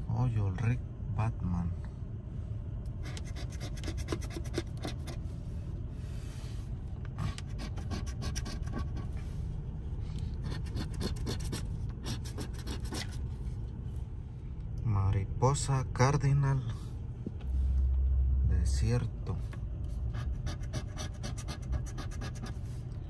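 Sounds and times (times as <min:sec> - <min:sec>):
coin scratching lottery ticket: 0:03.0 - 0:05.2, 0:07.4 - 0:09.1, 0:10.4 - 0:13.2, 0:20.1 - 0:22.6.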